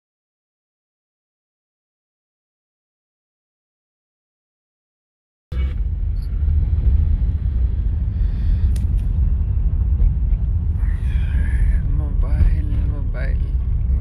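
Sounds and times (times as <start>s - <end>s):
car interior road and engine rumble: 5.5s - 14.0s.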